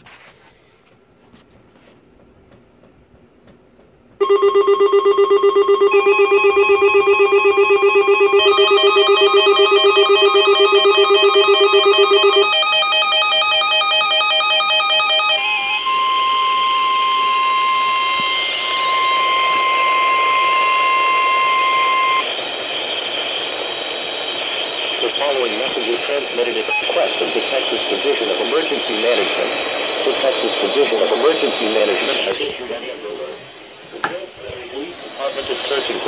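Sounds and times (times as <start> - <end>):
steady high alert tone: 4.2 - 22.3
electronic beeping and warbling alarms: 4.2 - 34.0
radio hiss: 15.8 - 36.0.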